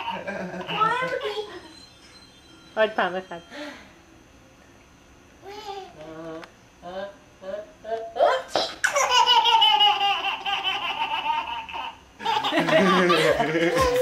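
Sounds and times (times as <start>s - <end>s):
toddler laughing: 8.2s - 14.0s.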